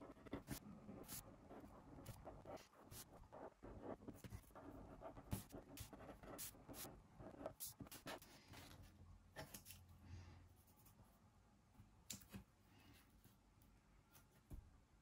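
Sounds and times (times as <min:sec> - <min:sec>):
pen scratching on paper: 0:00.0 - 0:08.3.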